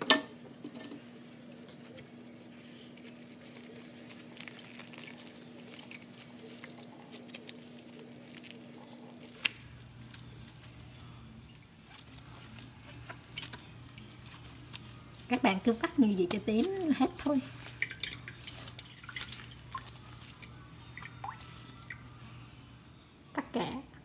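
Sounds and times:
wet cloth squishing: 1.4 - 22.2
water dripping: 3.6 - 10.2, 15.9 - 22.2.

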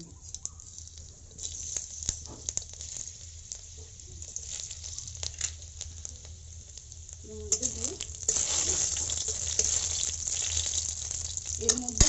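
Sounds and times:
spices sizzling in hot oil: 0.0 - 12.0.

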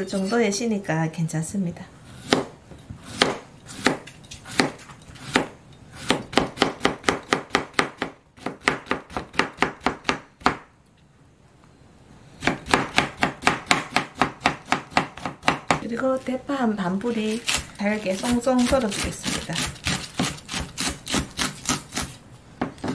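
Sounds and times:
knife chopping on plastic board: 2.2 - 10.7, 12.4 - 15.8, 17.4 - 22.9.

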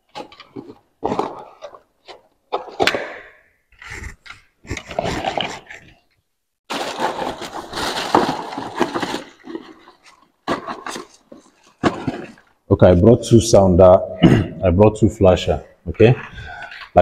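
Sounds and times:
cardboard rustling: 0.0 - 3.0, 3.8 - 6.1, 6.7 - 12.6.

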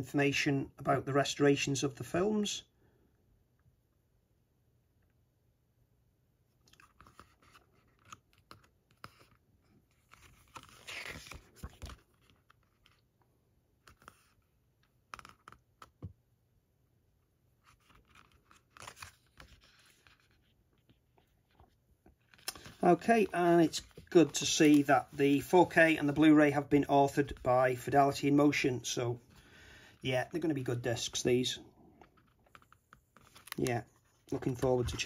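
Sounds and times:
book pages rustling and turning: 6.6 - 13.2, 13.8 - 16.2, 17.6 - 28.5, 32.0 - 35.0.

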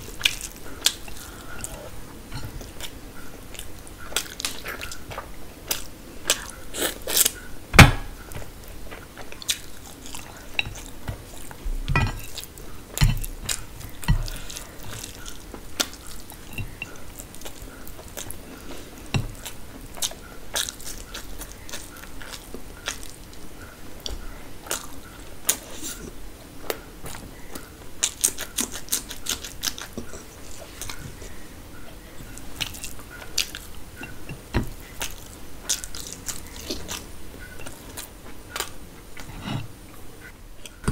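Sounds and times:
person chewing food: 0.0 - 40.9
dull thumps: 7.7 - 8.5.

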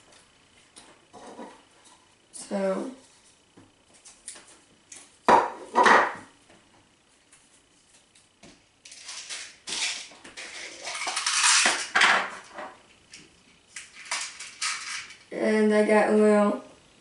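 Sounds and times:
plastic beads rattling in a dish: 8.9 - 12.0, 13.8 - 15.3.

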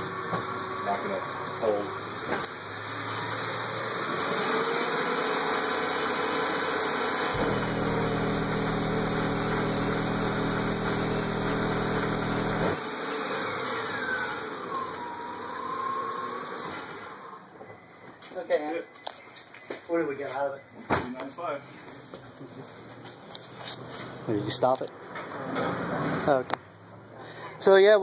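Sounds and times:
subwoofer low bass tone: 7.4 - 12.8.

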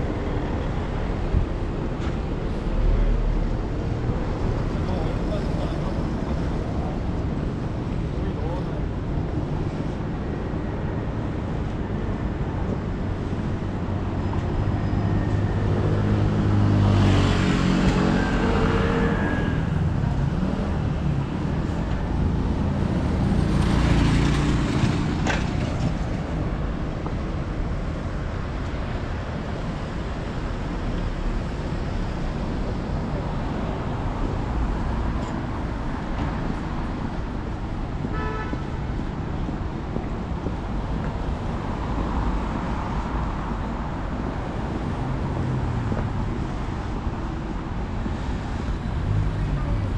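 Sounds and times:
road traffic rumble: 0.0 - 49.9
vehicles passing: 0.0 - 49.9.

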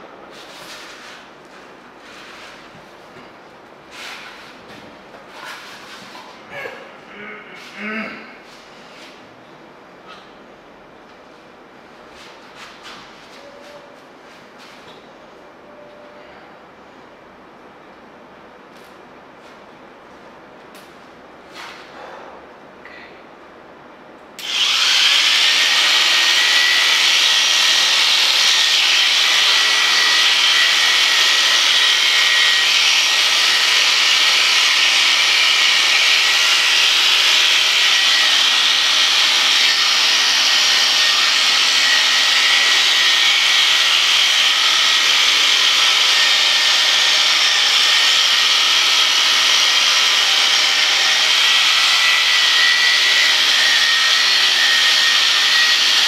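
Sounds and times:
electric shears whining: 24.4 - 56.0.

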